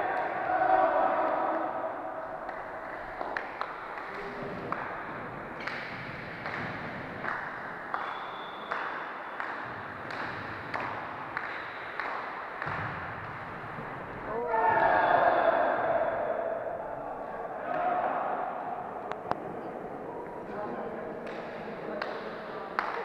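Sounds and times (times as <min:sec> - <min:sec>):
sports hall noise: 0:00.0 - 0:23.0
volleyball being hit: 0:05.6 - 0:13.6.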